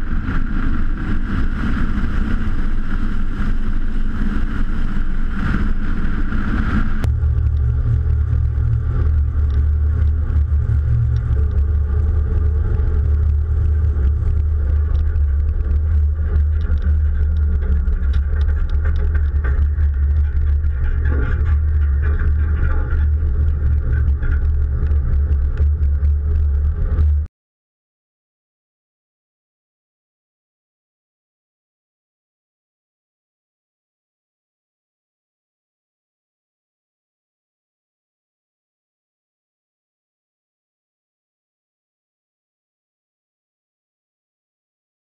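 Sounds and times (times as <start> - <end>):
engine rumble: 0.0 - 27.3
road noise: 0.0 - 27.3
wind rush over microphone: 0.0 - 27.3.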